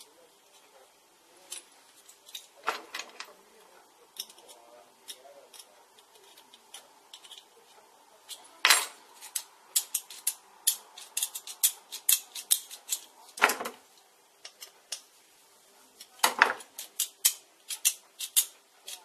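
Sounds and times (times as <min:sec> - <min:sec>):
metal parts clinking: 0:01.5 - 0:03.4, 0:04.1 - 0:07.5, 0:08.3 - 0:13.7, 0:16.0 - 0:19.0.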